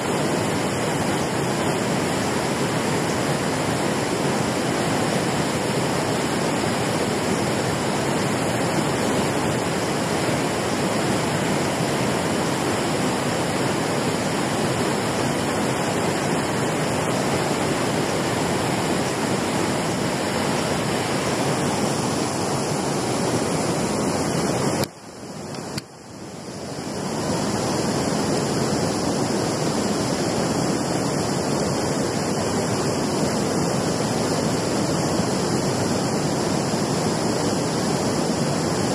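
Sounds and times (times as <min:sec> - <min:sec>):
water rushing over weir: 0:00.0 - 0:38.9.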